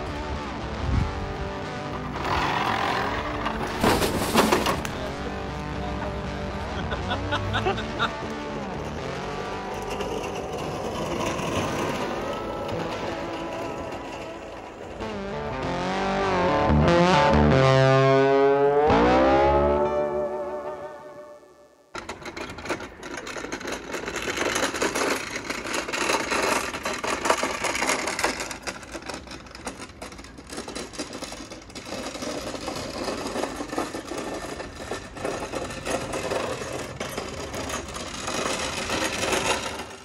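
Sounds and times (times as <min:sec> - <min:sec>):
small wheels rattling on asphalt: 0:01.6 - 0:05.4, 0:07.7 - 0:15.3, 0:21.9 - 0:40.0.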